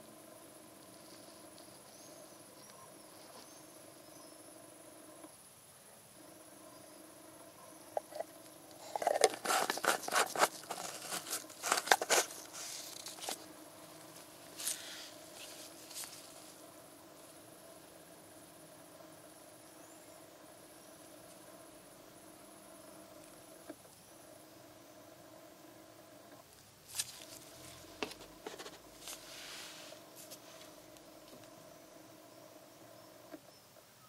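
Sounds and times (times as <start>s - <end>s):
low background hum: 0.0s - 34.0s
plastic bottle crinkling: 8.8s - 13.4s.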